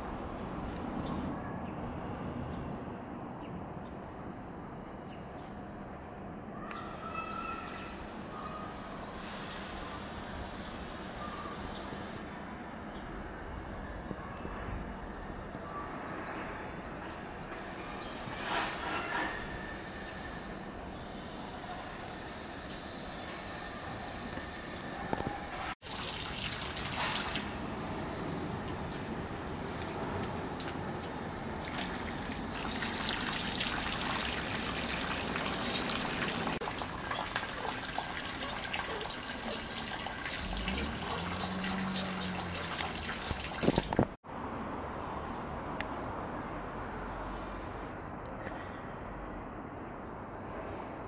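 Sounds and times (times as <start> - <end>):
open-air ambience: 0.0 - 51.0
water trickling into basin: 25.8 - 27.7, 28.7 - 44.2.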